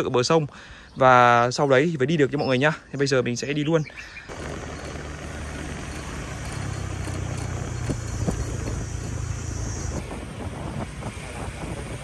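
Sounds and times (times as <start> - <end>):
motorbike engine at low revs: 4.3 - 12.0.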